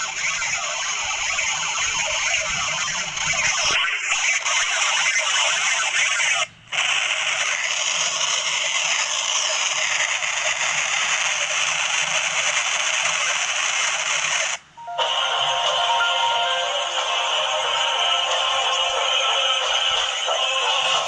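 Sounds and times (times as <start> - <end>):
distorted hissy wash: 14.2 - 21.0.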